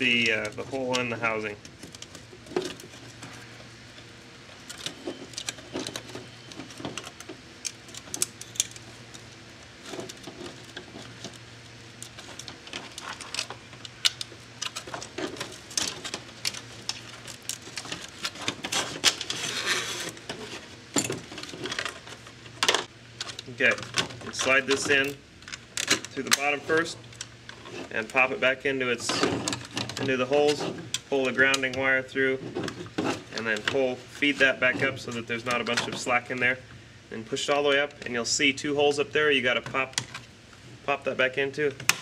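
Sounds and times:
steady low hum: 0.0s - 42.0s
rustling scrape: 14.8s - 22.4s.

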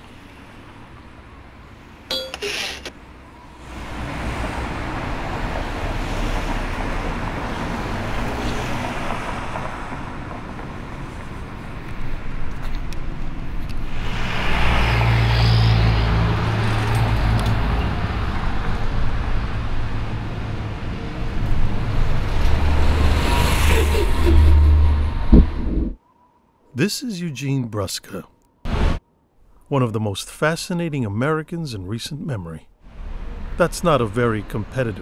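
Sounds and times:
cars passing by: 0.0s - 26.0s, 32.8s - 35.0s
loud vehicle engine passing: 3.4s - 11.5s, 13.8s - 25.9s.

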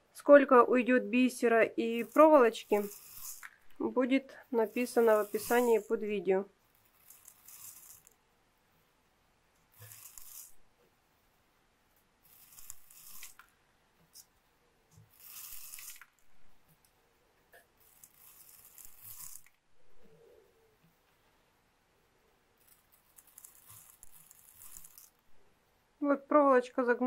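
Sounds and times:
beads hissing in spinning bowl: 1.8s - 3.8s, 4.5s - 6.2s, 6.8s - 8.2s, 9.7s - 10.6s, 12.2s - 13.5s, 15.1s - 16.2s, 17.8s - 19.6s, 22.6s - 25.2s.

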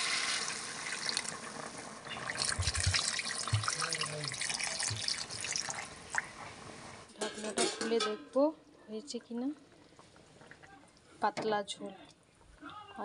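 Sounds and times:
water pouring into metal pot: 0.0s - 6.3s.

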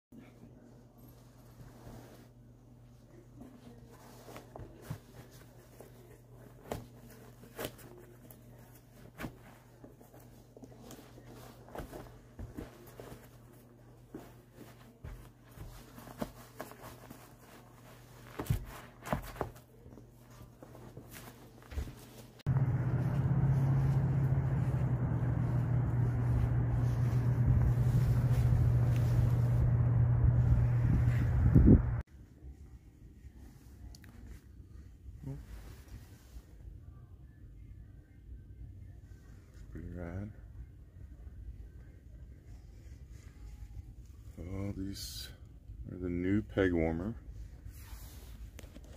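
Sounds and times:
faint rustling: 0.2s - 32.0s
low mechanical hum: 0.2s - 48.9s
low hum: 22.5s - 32.0s
wind on microphone: 29.7s - 32.0s.

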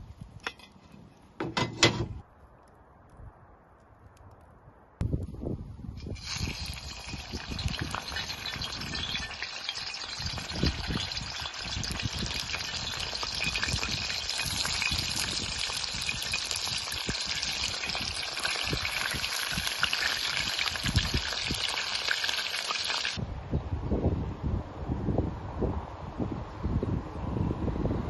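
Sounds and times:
chicken sizzling in hot oil: 6.0s - 23.2s.

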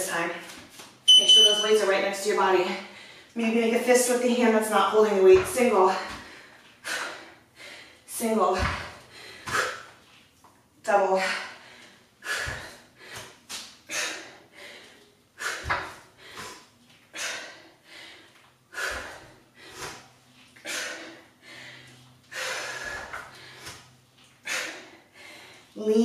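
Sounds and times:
woman breathing hard: 6.1s - 8.1s, 11.4s - 20.0s, 20.6s - 25.8s.

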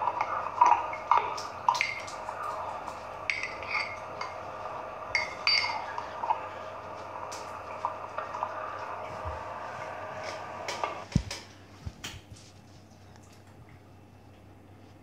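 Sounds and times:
spoon clinking in glass: 3.3s - 4.4s, 5.1s - 5.9s.

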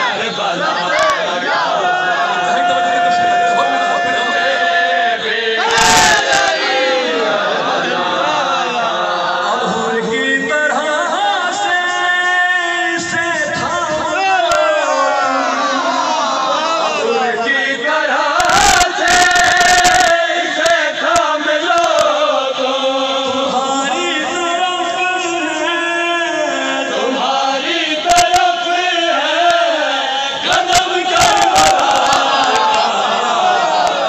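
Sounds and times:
man chanting through microphone: 9.4s - 33.7s.

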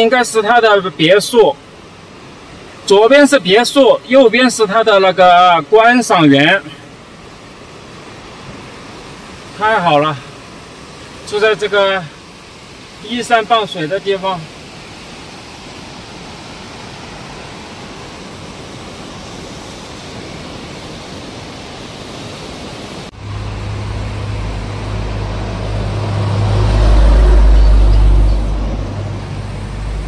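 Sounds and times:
flooded river roaring: 0.0s - 30.0s
vehicle passing rumble: 23.1s - 30.0s.

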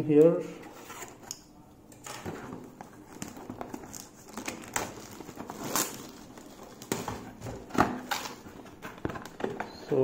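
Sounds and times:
plastic shrink wrap crinkling: 2.8s - 10.0s.

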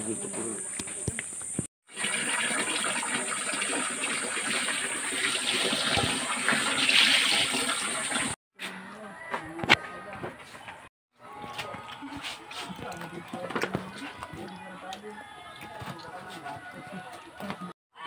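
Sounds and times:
water splashing on concrete floor: 1.9s - 8.4s.

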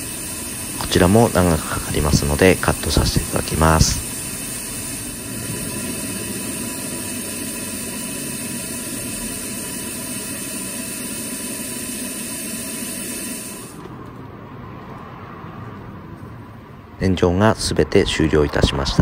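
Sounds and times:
steady hiss: 0.0s - 13.9s.

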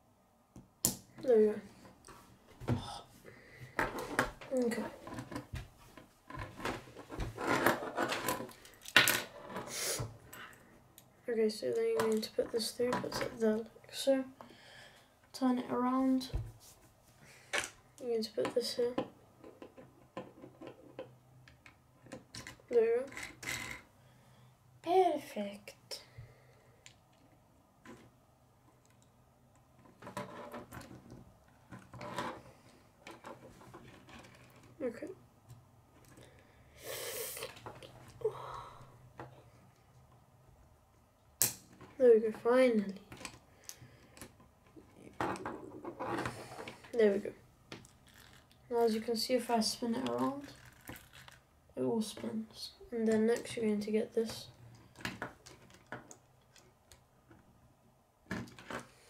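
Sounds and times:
plastic pieces clicking and rattling: 47.8s - 49.0s, 50.3s - 51.4s.

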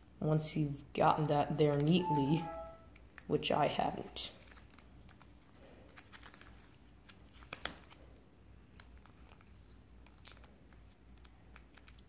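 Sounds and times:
paper crackling and clicking: 4.2s - 12.0s.

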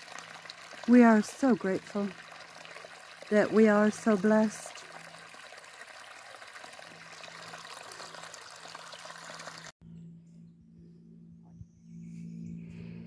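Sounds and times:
stream splashing over waterfall: 0.0s - 9.7s
steady low hum: 9.8s - 13.0s.

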